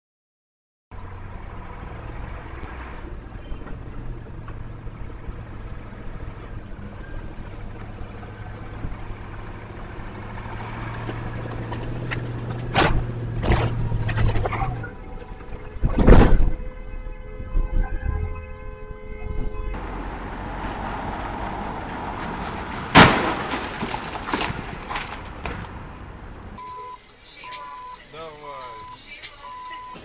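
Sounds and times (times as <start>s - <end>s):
low traffic hum: 0.9s - 30.0s
vehicles passing: 0.9s - 30.0s
loud sudden noises: 22.0s - 25.8s.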